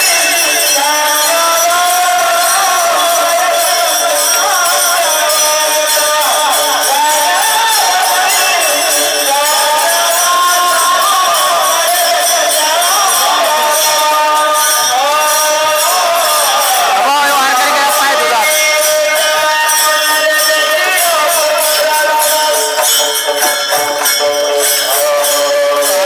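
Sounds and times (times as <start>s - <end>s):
hand cymbals clashing: 0.0s - 26.0s
men singing devotional song: 0.0s - 26.0s.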